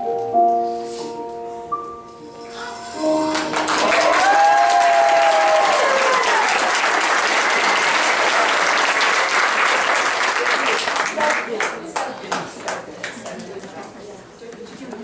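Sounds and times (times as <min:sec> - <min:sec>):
long cheer sliding down: 0:03.2 - 0:09.1
audience applause: 0:03.2 - 0:13.3.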